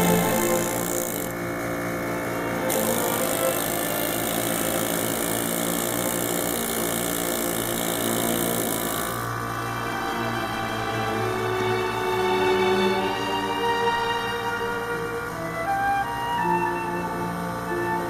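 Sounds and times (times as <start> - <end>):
background music sustained notes: 0.0 - 4.7, 9.3 - 18.0
hissing machine noise: 0.0 - 18.0.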